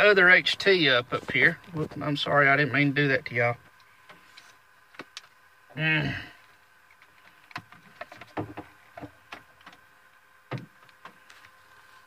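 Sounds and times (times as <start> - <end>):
faint steady whine: 0.0 - 12.0.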